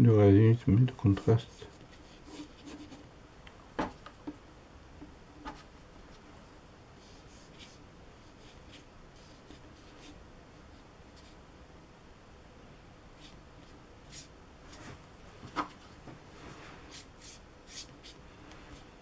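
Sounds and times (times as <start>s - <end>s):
paintbrush scratching across paper: 7.0s - 10.2s, 16.8s - 18.2s.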